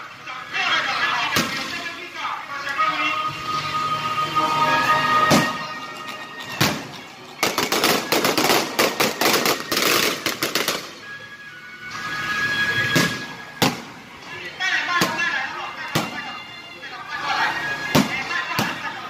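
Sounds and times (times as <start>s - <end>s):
fireworks bangs: 6.5s - 11.0s.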